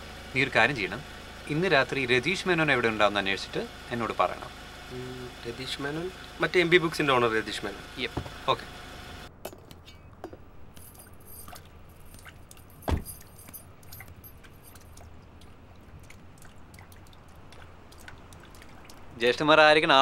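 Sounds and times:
car door shutting: 8.1s - 8.6s, 12.8s - 13.2s
high metallic jingling: 10.7s - 15.0s.

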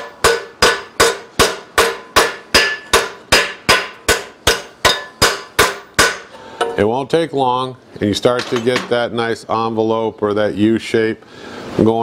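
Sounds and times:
hammer striking steel: 0.0s - 6.9s.

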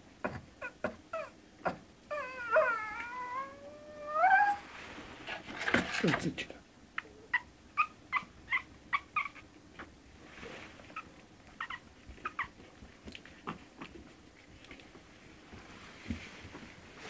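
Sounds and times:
puppies squeaking and whimpering: 2.1s - 4.6s, 7.3s - 9.5s, 10.9s - 12.6s.

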